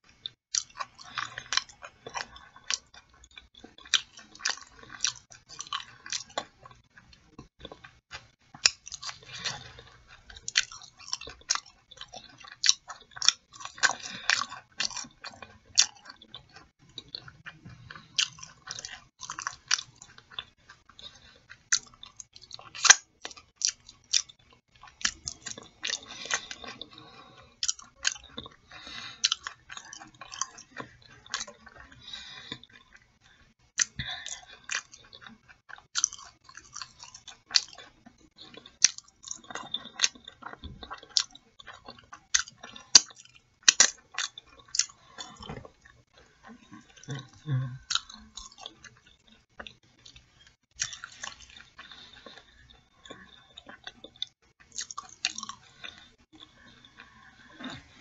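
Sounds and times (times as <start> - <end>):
close chewing of food: 0.0 - 58.0
mouth clicks and smacks: 33.7 - 58.0.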